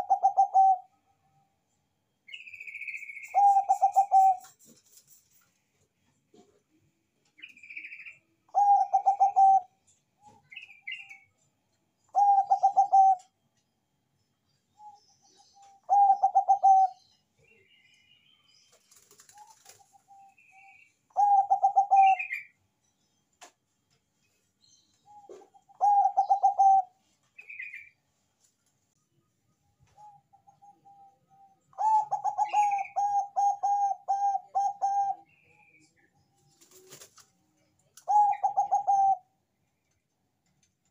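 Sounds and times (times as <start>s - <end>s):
dove cooing: 0.0s - 0.9s, 3.3s - 4.7s, 8.5s - 11.0s, 12.1s - 13.3s, 15.6s - 17.0s, 19.2s - 22.5s, 25.1s - 27.8s, 30.0s - 35.3s, 38.0s - 39.3s.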